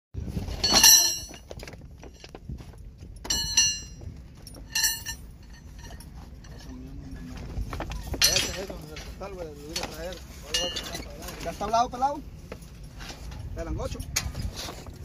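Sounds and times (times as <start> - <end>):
steel rebar clanking: 0.5 - 2.3, 3.2 - 6.9, 7.9 - 11.5.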